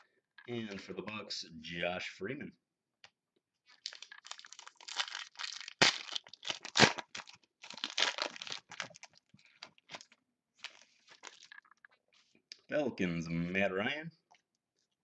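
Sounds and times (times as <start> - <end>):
wrapper crinkling and tearing: 3.7 - 11.8.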